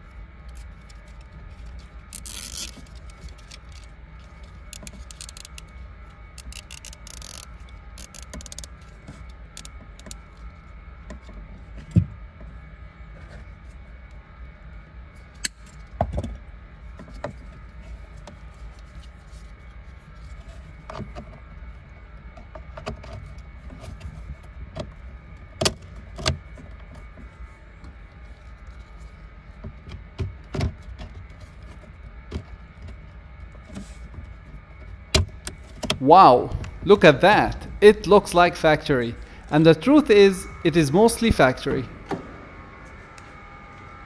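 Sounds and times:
steady low hum: 0.0 - 13.2, 35.6 - 44.0
pliers snipping cable tie: 2.2 - 2.8, 4.8 - 5.6, 6.4 - 7.4, 8.0 - 8.7
plastic clicks and snaps: 6.4 - 8.7.

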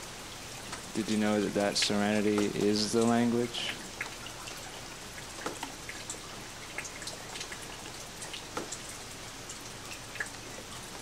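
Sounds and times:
steady rain hiss: 0.0 - 11.0
water drops landing: 1.8 - 4.2.

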